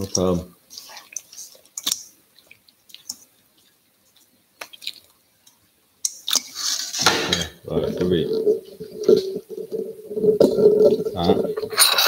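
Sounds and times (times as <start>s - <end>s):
wet squelches in metal bowl: 0.0s - 5.1s.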